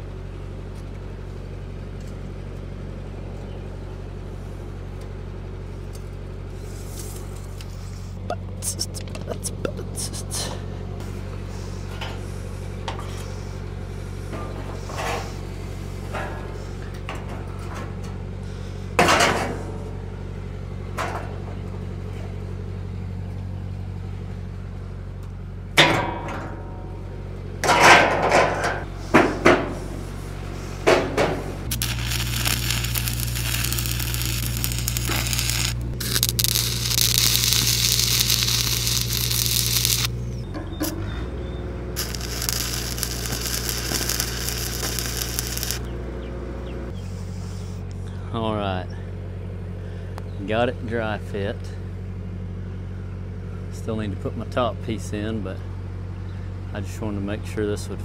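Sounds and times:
welding rig engine humming: 0:00.0 - 0:58.0
stick welding crackling: 0:31.6 - 0:41.0, 0:42.0 - 0:45.9.

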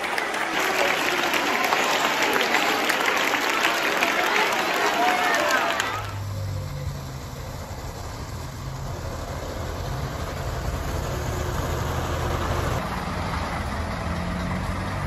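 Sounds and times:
large vehicle engine running: 0:06.1 - 0:15.0.

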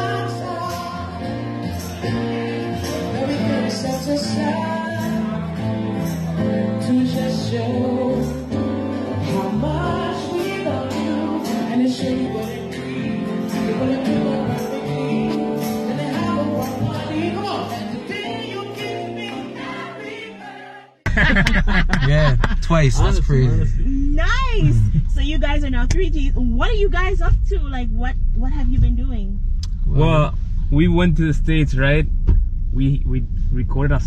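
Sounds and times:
man singing into a microphone: 0:00.0 - 0:05.5, 0:06.8 - 0:20.1
live band playing: 0:00.0 - 0:19.2
acoustic guitar: 0:00.0 - 0:32.6.

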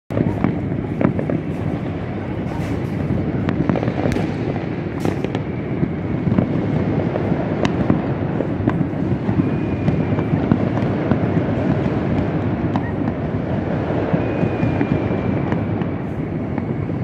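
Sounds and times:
distant fireworks crackling: 0:00.1 - 0:17.0
sharp firework cracks: 0:00.1 - 0:17.0.

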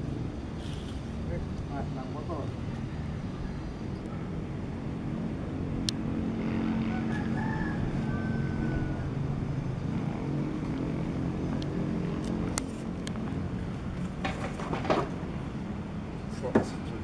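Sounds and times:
rooster crowing faintly: 0:06.8 - 0:09.2.

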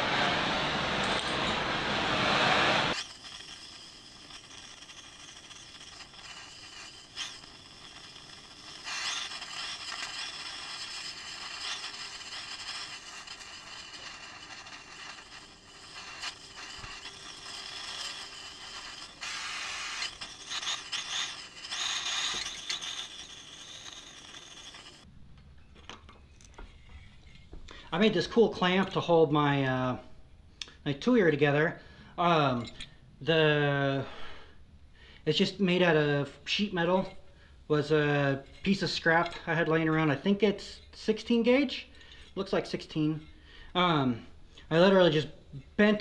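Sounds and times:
torch flame hissing: 0:00.0 - 0:25.1.

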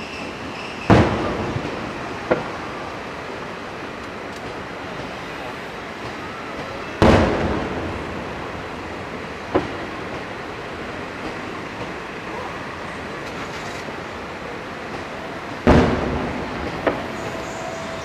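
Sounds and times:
firework boom: 0:00.8 - 0:02.6, 0:07.0 - 0:08.6, 0:15.6 - 0:17.6
sharp crack: 0:14.9 - 0:17.6.

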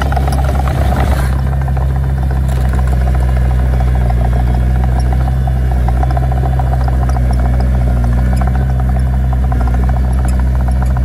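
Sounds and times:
diesel engine throbbing: 0:00.0 - 0:11.0.

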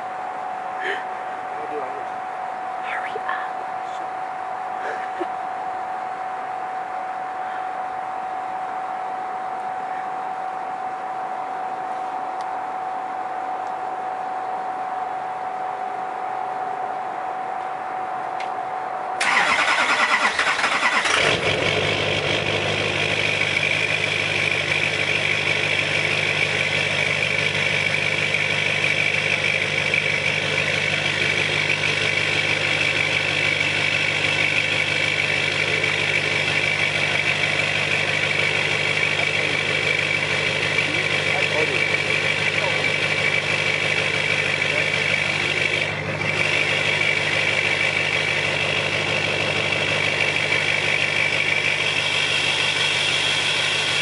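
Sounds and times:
constant high whine: 0:00.0 - 0:54.0
diesel engine idling: 0:00.0 - 0:54.0
starter motor cranking: 0:19.2 - 0:21.6.

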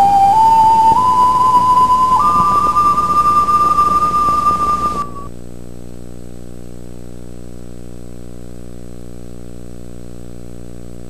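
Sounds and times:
high held music tone: 0:00.0 - 0:05.3
low electrical hum with buzz: 0:05.3 - 0:11.0.

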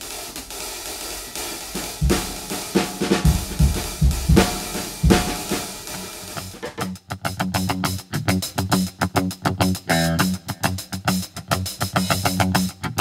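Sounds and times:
drum kit playing: 0:00.0 - 0:07.0.

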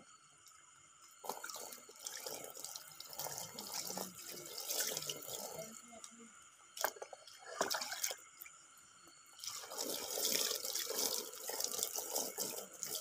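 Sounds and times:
water splashing over fish: 0:06.8 - 0:08.2.

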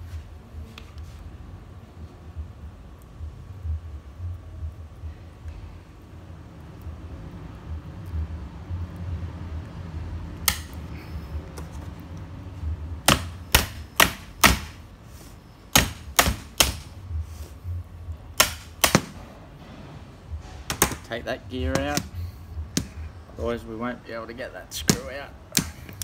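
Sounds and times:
hammer tapping on metal pliers: 0:21.7 - 0:23.0, 0:24.8 - 0:26.0.

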